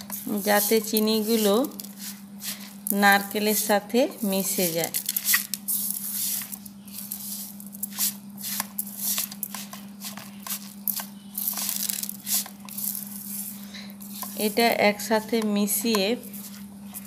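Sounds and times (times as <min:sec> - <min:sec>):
hand rubbing grated coconut: 0:00.0 - 0:17.0
steady low hum: 0:00.0 - 0:17.0.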